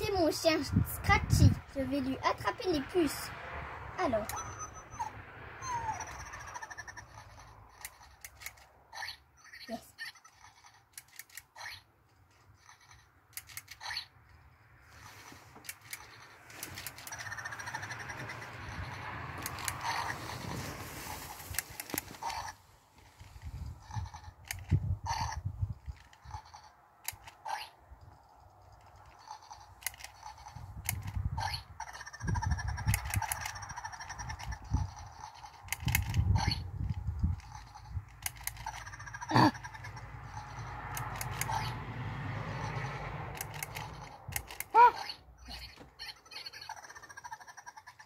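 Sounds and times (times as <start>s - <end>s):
electronic toy beeps: 4.2s - 8.2s
small plastic clicks: 7.4s - 8.7s, 10.2s - 14.0s, 15.5s - 18.0s, 24.3s - 24.8s, 25.8s - 32.0s, 32.7s - 39.0s, 40.9s - 41.7s, 43.3s - 44.8s.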